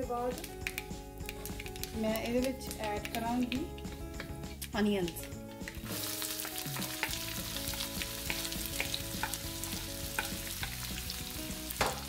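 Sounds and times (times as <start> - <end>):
onions sizzling in hot oil: 5.7 - 12.0.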